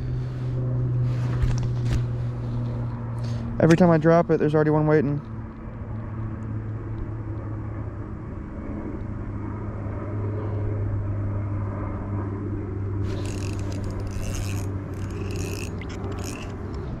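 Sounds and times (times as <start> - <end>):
steady low hum: 0.0 - 17.0
fishing reel cranking: 13.1 - 16.8.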